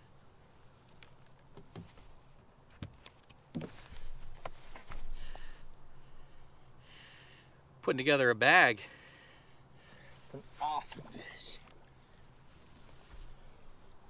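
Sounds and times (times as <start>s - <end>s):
faint low hum: 3.4s - 14.0s.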